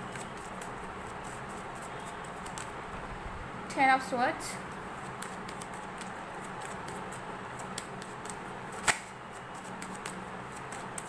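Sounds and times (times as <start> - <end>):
cards flicking and shuffling: 0.0 - 2.8, 5.0 - 11.0
card snap: 8.8 - 9.1.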